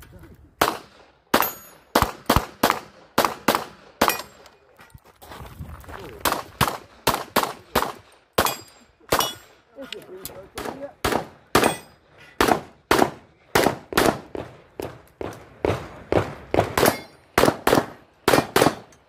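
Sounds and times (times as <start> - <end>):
pistol shots: 0.6 - 4.3, 6.2 - 9.4, 10.6 - 11.8, 12.4 - 18.9
metallic ring of steel targets: 1.4 - 2.0, 4.0 - 4.5, 8.4 - 9.6, 11.6 - 12.0, 16.8 - 17.2.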